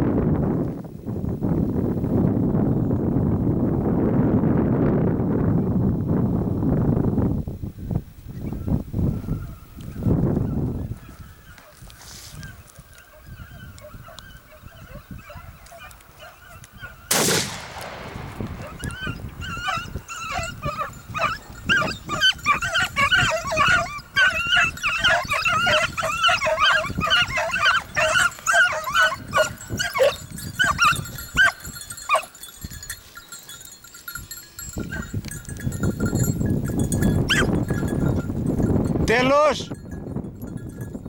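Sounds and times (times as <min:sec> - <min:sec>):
hounds baying and yelping: 0:09.2 - 0:17.1, 0:18.4 - 0:35.4, 0:36.2 - 0:38.3
scuffling rustle: 0:10.9 - 0:13.2
shotgun shot: 0:17.1 - 0:18.9.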